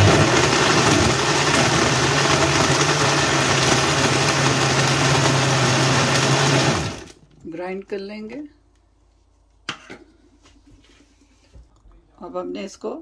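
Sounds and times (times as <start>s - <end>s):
blender churning ice: 0.0s - 7.2s.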